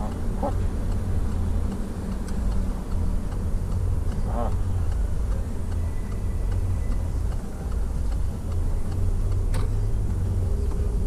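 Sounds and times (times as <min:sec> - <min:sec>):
engine and road rumble: 0:00.0 - 0:11.0
turn signal ticking: 0:00.0 - 0:11.0
sharp click: 0:09.3 - 0:09.8.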